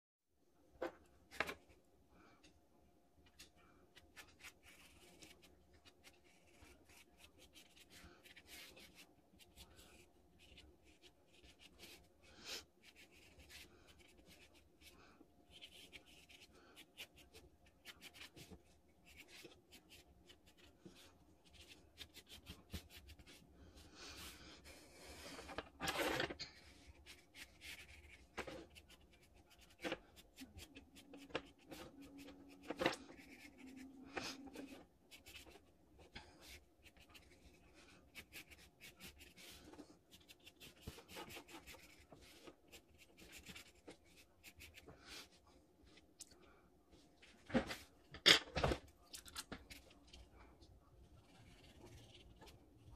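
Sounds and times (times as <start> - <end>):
pencil scratching on paper: 36.2 - 44.9.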